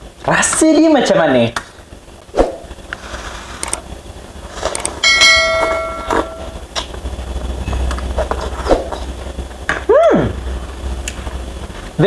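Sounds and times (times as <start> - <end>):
notification bell chime: 5.0 - 6.5.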